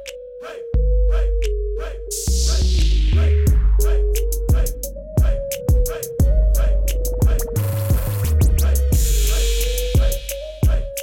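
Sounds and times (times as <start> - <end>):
kick drum and hi-hat beat: 1.4 - 11.0.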